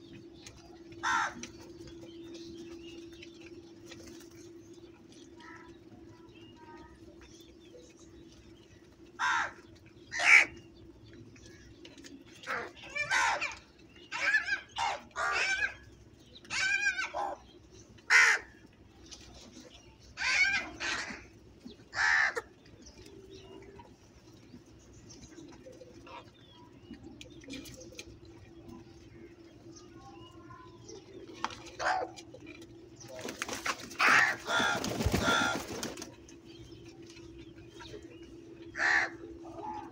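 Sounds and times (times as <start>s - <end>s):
crows cawing: 1.0s - 1.5s, 9.2s - 10.6s, 14.2s - 15.8s, 18.1s - 18.6s, 21.9s - 22.5s, 34.0s - 36.0s, 38.7s - 39.9s.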